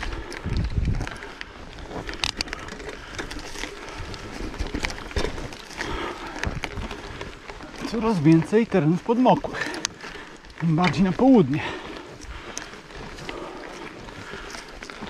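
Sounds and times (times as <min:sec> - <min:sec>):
wind buffeting microphone: 0:00.0 - 0:08.8
rattle riding over rough track: 0:00.0 - 0:15.0.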